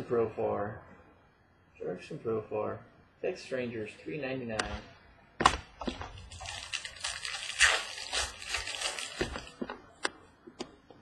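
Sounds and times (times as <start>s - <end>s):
plastic rustling: 5.8s - 9.7s.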